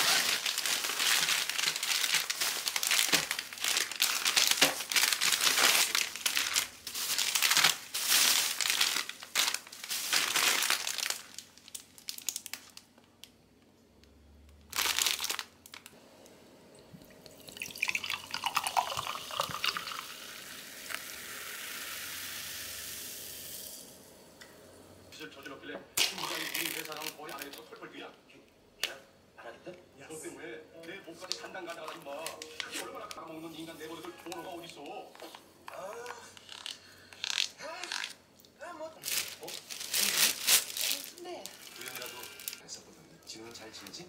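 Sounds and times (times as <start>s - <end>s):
plastic wrappers crinkling: 0.0s - 13.4s, 14.6s - 16.0s, 17.4s - 20.0s, 26.0s - 27.8s, 31.2s - 38.2s, 39.0s - 42.7s
sparkling water pouring into cup: 16.8s - 24.1s
fizzing hiss: 17.0s - 24.1s.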